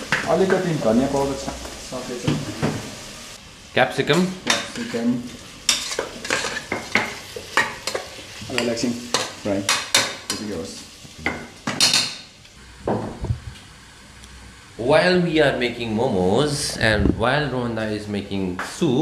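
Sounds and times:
food frying and sizzling: 0.0s - 16.9s
metal spoon scraping a pot: 5.7s - 6.9s.

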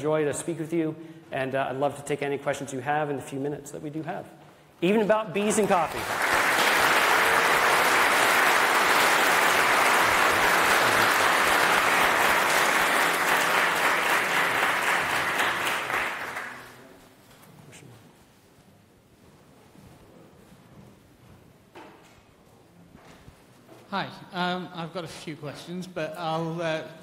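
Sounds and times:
audience applauding: 5.4s - 16.8s.

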